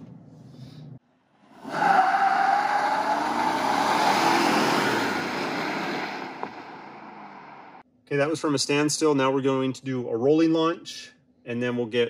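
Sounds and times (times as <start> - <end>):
engine accelerating hard: 2.6 - 7.8.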